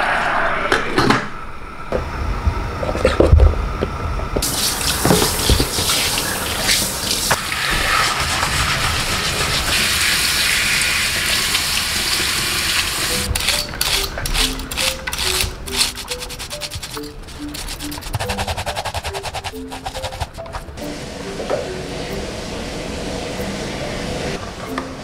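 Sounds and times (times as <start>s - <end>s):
faucet running into metal sink: 4.4s - 8.2s.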